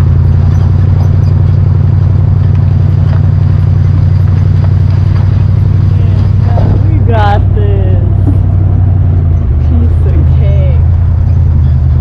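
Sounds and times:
light clatter: 0:00.0 - 0:07.1
car engine running: 0:00.0 - 0:12.0.

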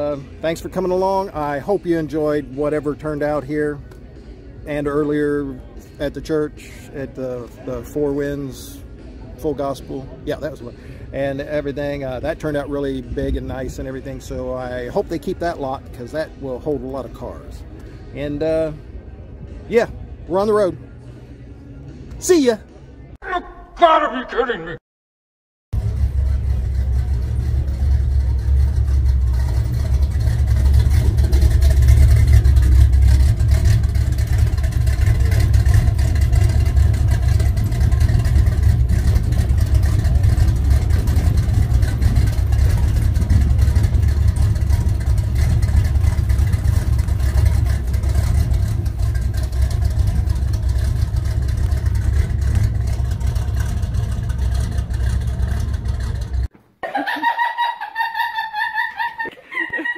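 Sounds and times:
vehicle engine and road rumble: 0:00.0 - 0:23.2, 0:25.7 - 0:56.6.

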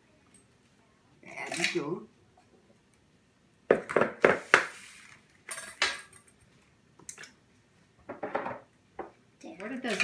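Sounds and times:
eggs knocking on plastic bowl: 0:03.7 - 0:04.6.

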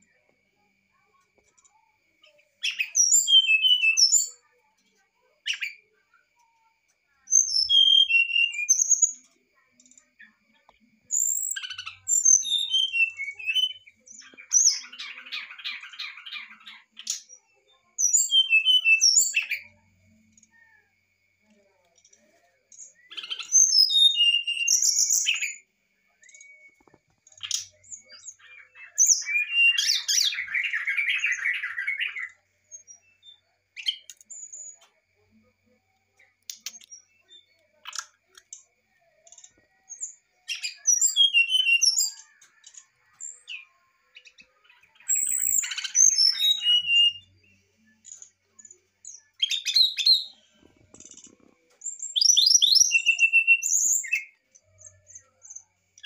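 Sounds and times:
bird singing fluting whistles: 0:02.7 - 0:04.3, 0:07.4 - 0:08.9, 0:18.1 - 0:19.4, 0:23.5 - 0:25.6, 0:40.6 - 0:42.2, 0:45.1 - 0:47.3, 0:52.0 - 0:54.3.

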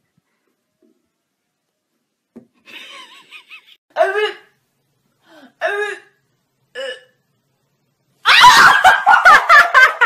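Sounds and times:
woman laughing: 0:02.7 - 0:03.8, 0:08.3 - 0:10.0.

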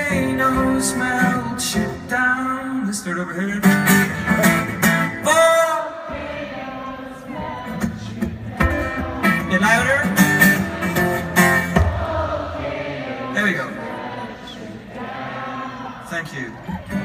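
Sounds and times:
man singing: 0:00.0 - 0:06.0
acoustic guitar strumming: 0:00.0 - 0:06.2, 0:07.6 - 0:14.3.

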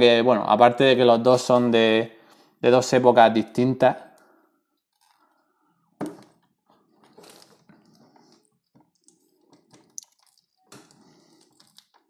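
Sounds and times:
plastic figures clicking and rustling: 0:07.0 - 0:12.0.

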